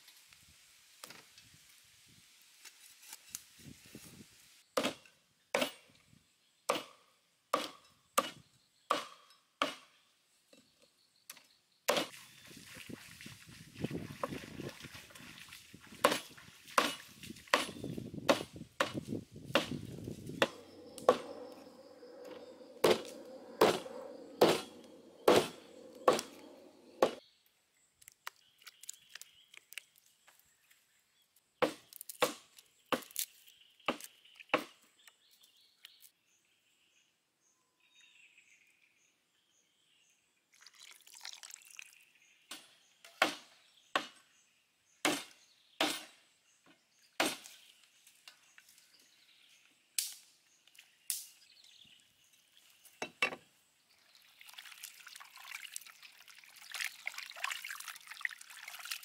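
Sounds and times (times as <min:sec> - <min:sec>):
cleaver chopping on wooden board: 0:07.6 - 0:09.9, 0:16.0 - 0:19.8, 0:22.8 - 0:26.4, 0:27.0 - 0:27.2, 0:43.2 - 0:44.2, 0:45.0 - 0:46.1.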